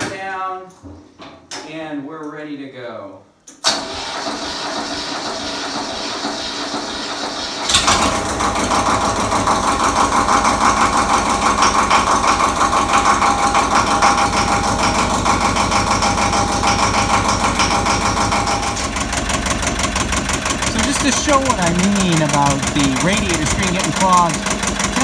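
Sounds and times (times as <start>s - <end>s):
diesel engine cranking on starter: 3.5s - 25.0s
diesel engine running: 7.7s - 25.0s
hydraulics lowering loader: 7.7s - 25.0s.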